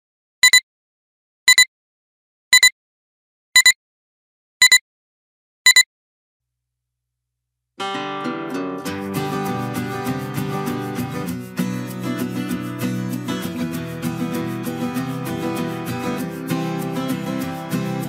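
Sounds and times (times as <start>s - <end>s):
short high countdown beeps: 0.4s - 0.6s, 1.5s - 1.7s, 2.5s - 2.7s, 3.6s - 3.8s, 4.6s - 4.8s, 5.7s - 5.9s
music: 7.8s - 18.0s.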